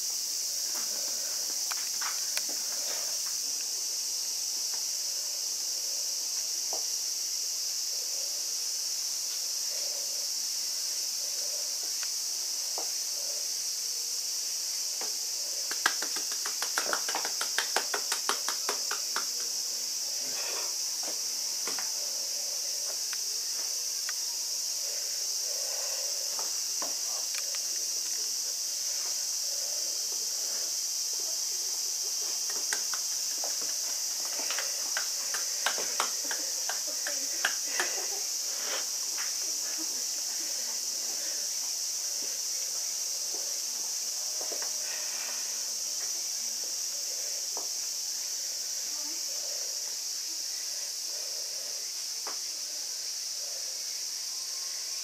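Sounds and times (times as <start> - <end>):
insects buzzing: 0.0 - 55.0.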